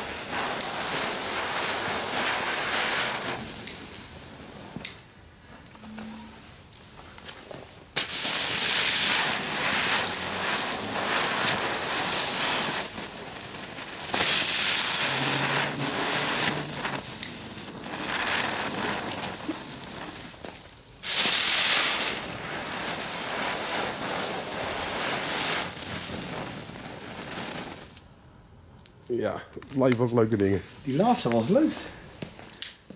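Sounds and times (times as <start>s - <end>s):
firework spinners hissing: 0.0s - 5.1s, 7.9s - 28.3s.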